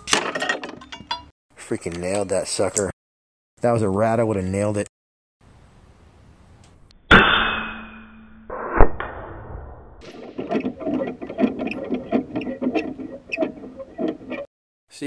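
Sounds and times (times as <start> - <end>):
air rifle shot: 7.1 - 7.7, 8.5 - 9.9
pellet striking steel target: 7.1 - 9.1
spinner target clanking: 10.0 - 14.5.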